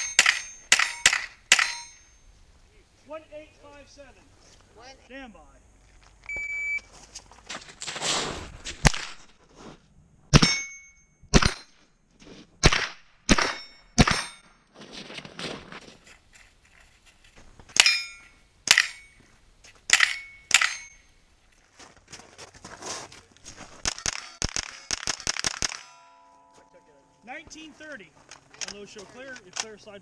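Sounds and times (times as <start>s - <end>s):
steel plate ringing: 0.0s - 2.4s, 10.4s - 11.7s, 17.8s - 19.3s, 19.9s - 21.2s, 25.8s - 27.3s
shot timer beep: 6.3s - 6.9s
rifle shots: 11.3s - 11.7s, 12.6s - 14.4s, 23.8s - 26.0s.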